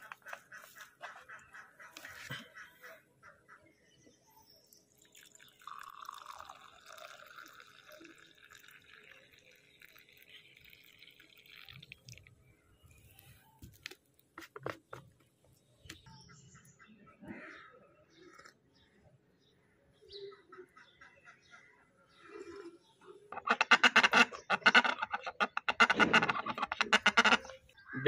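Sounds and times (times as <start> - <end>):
tea pouring into a cup: 4.7 - 12.8.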